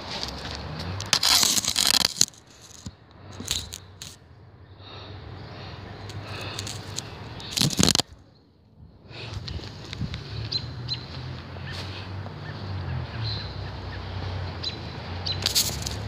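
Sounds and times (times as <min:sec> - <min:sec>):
phone handling rubs: 0:06.4 - 0:08.0.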